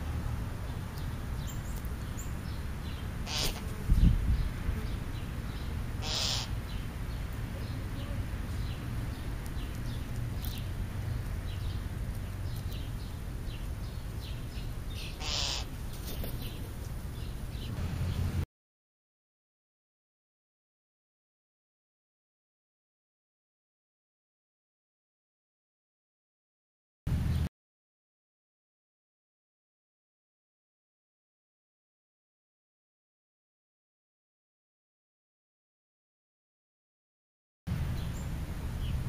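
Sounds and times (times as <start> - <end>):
crows calling: 3.2 - 3.7, 6.0 - 6.7, 15.0 - 15.8.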